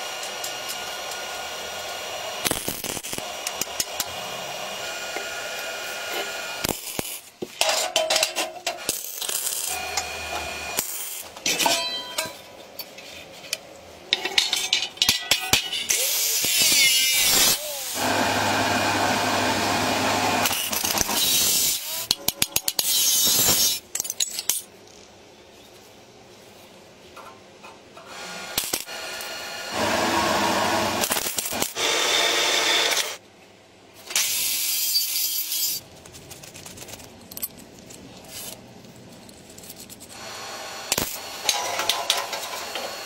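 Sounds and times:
hand tools clinking: 0:11.4 - 0:13.0
small power tool running: 0:17.2 - 0:21.2, 0:28.2 - 0:33.2.

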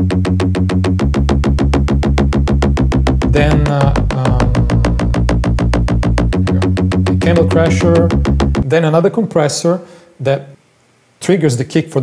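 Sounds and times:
synth bass loop: 0:00.0 - 0:08.7.

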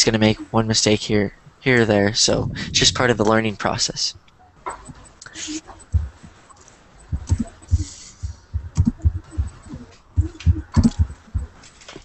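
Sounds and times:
keyboard typing: 0:04.7 - 0:11.9.

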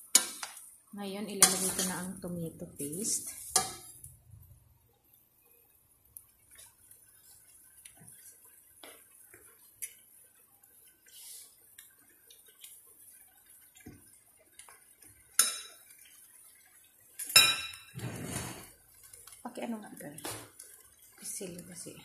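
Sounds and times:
metal cookware clinking and tapping: 0:01.4 - 0:02.1, 0:03.5 - 0:04.0, 0:15.3 - 0:15.9, 0:17.2 - 0:18.0
cookware clattering: 0:03.1 - 0:04.0, 0:15.4 - 0:15.8, 0:17.2 - 0:18.7.

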